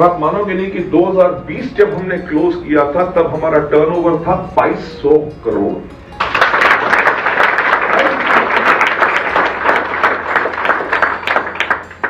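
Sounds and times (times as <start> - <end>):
audience applause: 6.2 - 12.0.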